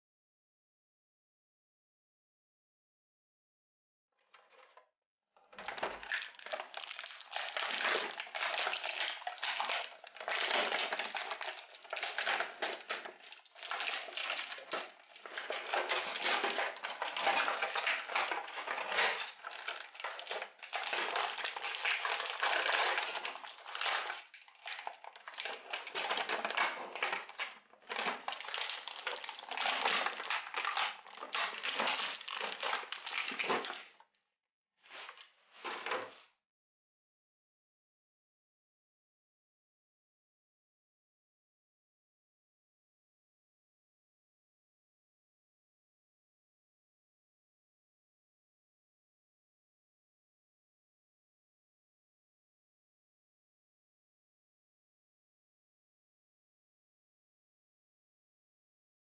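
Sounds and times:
plastic packaging crinkling: 5.9 - 33.9.

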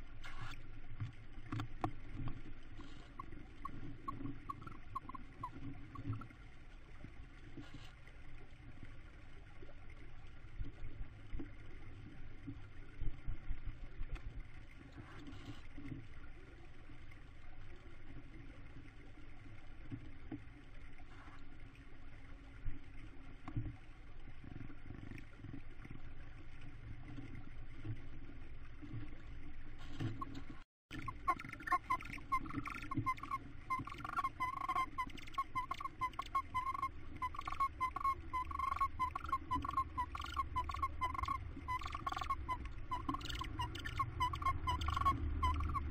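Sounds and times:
thin squeaky chick chirps: 31.0 - 45.9.

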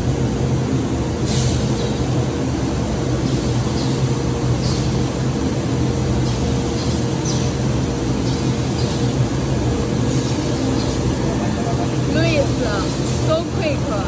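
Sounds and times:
factory machinery humming: 0.0 - 14.0.

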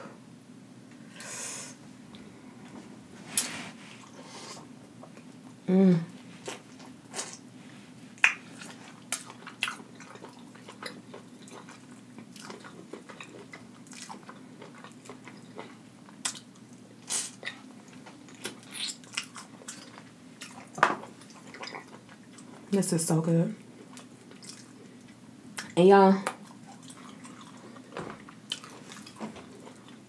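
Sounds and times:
chewing with wet mouth smacks: 8.2 - 22.6, 23.8 - 30.0.

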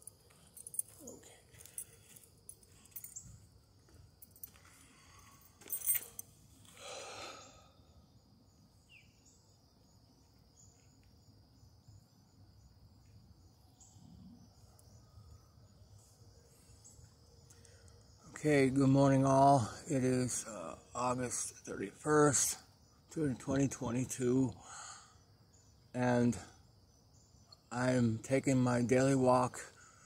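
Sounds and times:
insects trilling: 0.0 - 30.0.

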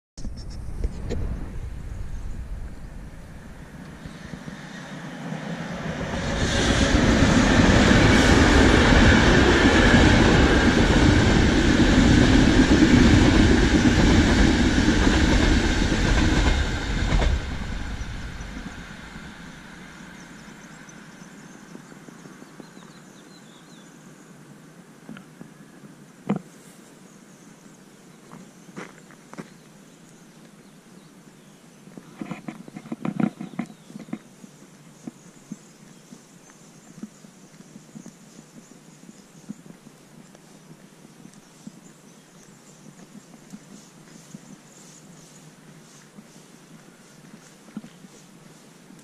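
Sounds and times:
train crossing bridge overhead: 1.2 - 22.0.

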